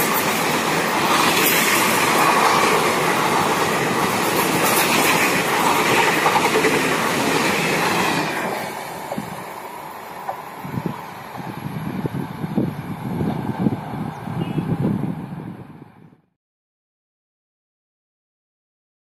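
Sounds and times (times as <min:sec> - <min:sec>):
train wheels clattering on rails: 0:00.0 - 0:11.5.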